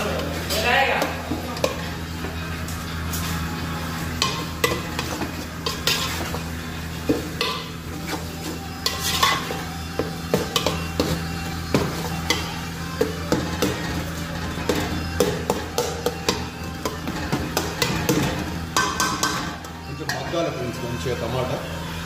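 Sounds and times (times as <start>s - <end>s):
ladle scraping metal pot: 4.0s - 20.6s.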